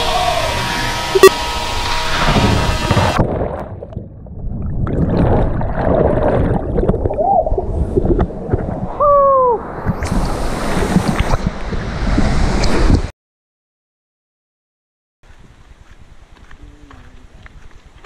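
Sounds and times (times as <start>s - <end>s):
wind: 0.0s - 13.1s, 15.2s - 18.0s
underwater churning and bubbling: 3.0s - 9.0s.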